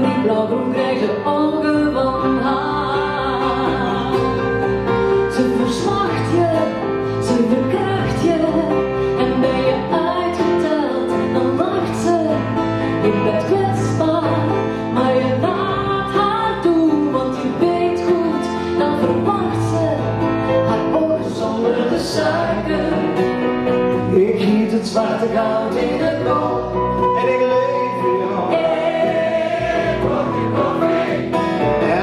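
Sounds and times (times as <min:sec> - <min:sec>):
woman singing: 0:00.0 - 0:04.6, 0:05.2 - 0:23.2
acoustic guitar: 0:00.0 - 0:32.0
double bass: 0:00.0 - 0:32.0
keyboard: 0:00.0 - 0:32.0.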